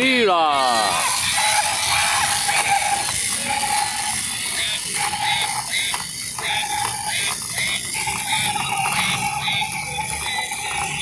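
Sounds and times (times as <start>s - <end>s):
toy gearbox clicking and rattling: 0.5s - 11.0s
short electronic tone: 4.6s - 11.0s.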